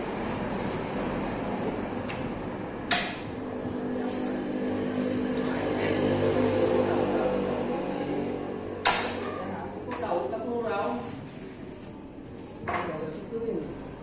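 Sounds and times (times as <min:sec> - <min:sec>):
vehicle engine droning past: 0:03.3 - 0:09.9.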